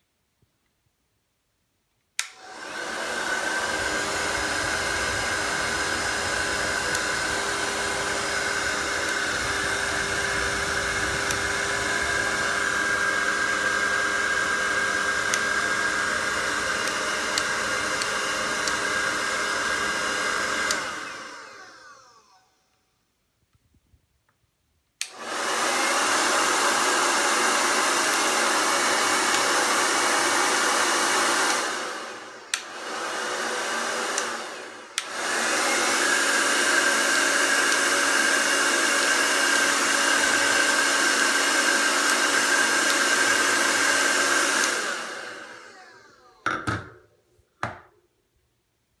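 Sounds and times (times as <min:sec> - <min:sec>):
hair dryer switch clicks: 0:02.2 - 0:21.4, 0:25.0 - 0:26.9, 0:28.8 - 0:30.0, 0:31.0 - 0:46.6
hair dryer blowing: 0:02.2 - 0:23.1, 0:25.0 - 0:48.0.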